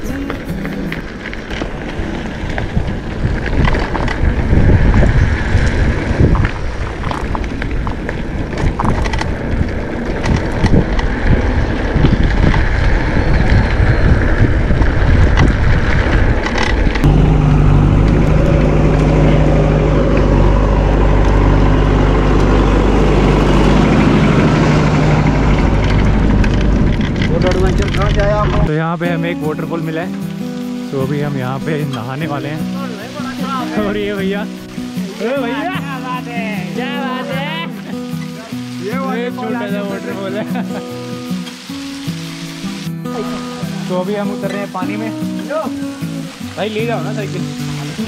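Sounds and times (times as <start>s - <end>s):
tyre rumble: 0.0s - 28.7s
bike rattling and clicking: 0.0s - 28.8s
wind buffeting camera: 0.0s - 28.8s
low engine hum: 0.6s - 28.7s.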